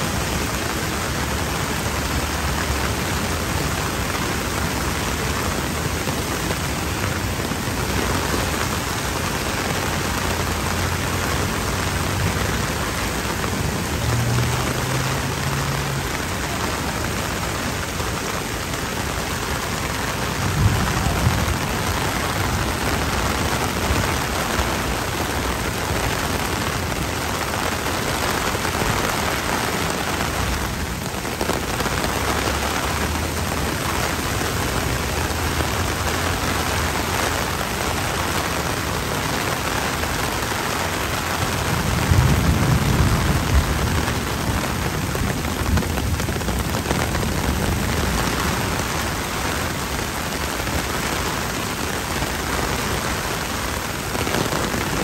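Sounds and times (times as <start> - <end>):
heavy rain pouring on street: 0.0 - 55.0.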